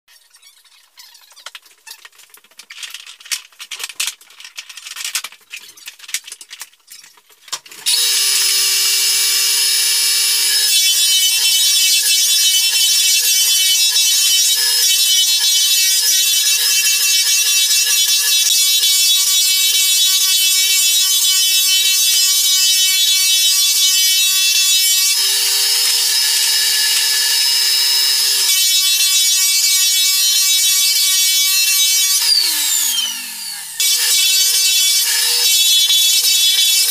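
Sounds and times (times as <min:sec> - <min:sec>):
floor sander whining: 0:07.8 - 0:11.6, 0:25.0 - 0:28.6.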